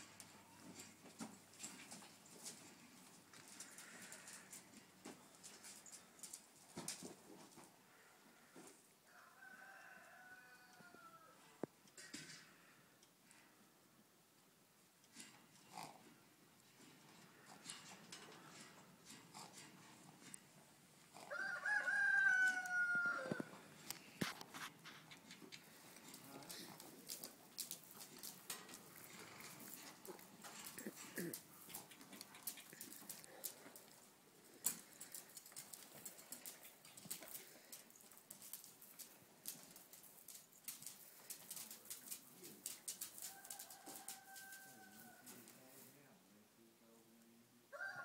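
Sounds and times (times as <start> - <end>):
rooster crowing: 9.1 - 11.4, 21.3 - 23.6, 43.3 - 45.4, 47.7 - 48.0
horse hooves walking on dirt: 16.6 - 45.8.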